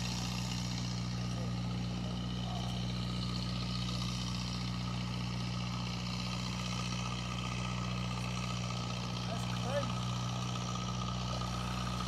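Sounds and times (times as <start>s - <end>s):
motor idling hum: 0.0s - 12.0s.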